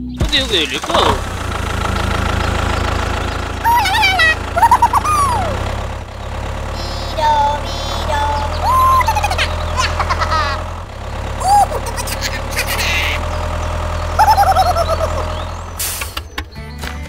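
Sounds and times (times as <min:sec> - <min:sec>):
tractor engine idling: 0:00.0 - 0:16.7
squeaky cartoon-like voices: 0:03.6 - 0:05.6, 0:06.8 - 0:10.6, 0:11.4 - 0:13.3, 0:14.2 - 0:15.4.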